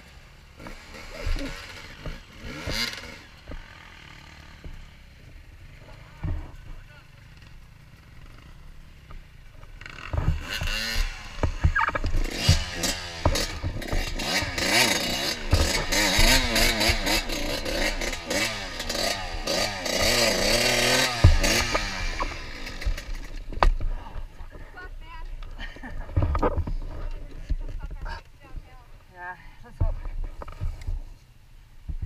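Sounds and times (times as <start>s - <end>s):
dirt bike engine revving: 0.0s - 24.8s
sharp thump: 10.0s - 23.9s.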